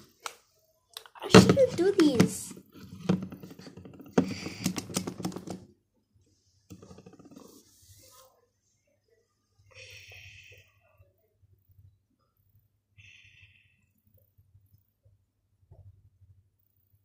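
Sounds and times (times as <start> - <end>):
plastic bottle clicks and rustles: 1.0 - 5.7.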